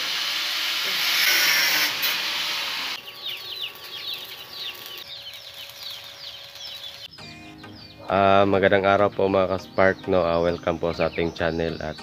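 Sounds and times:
angle grinder cutting steel: 0:00.0 - 0:03.0
chicks peeping: 0:03.0 - 0:12.0.

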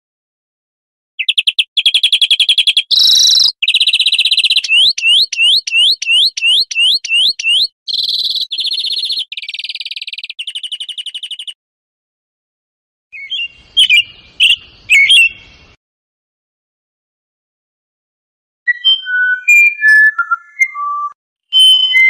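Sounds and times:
finch song with chirping trills: 0:01.2 - 0:11.6, 0:13.2 - 0:15.8.

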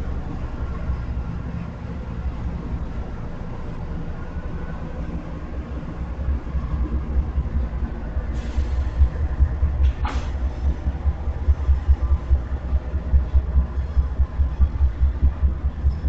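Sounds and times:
freight train rumbling past: 0:00.0 - 0:16.0.

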